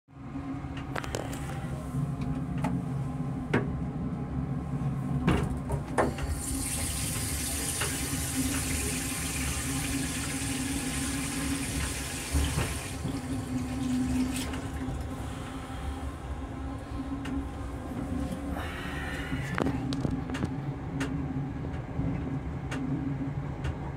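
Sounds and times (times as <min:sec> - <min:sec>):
railcar low hum: 0:00.1 - 0:23.9
toilet flushing hiss: 0:06.0 - 0:15.6.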